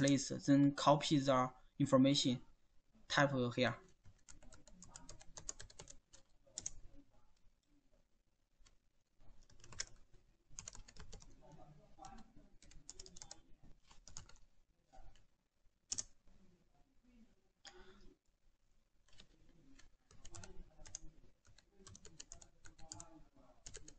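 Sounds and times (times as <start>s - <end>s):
faint keyboard typing: 0.0s - 0.3s, 3.7s - 7.8s, 8.6s - 15.3s, 15.9s - 16.3s, 19.0s - 23.9s.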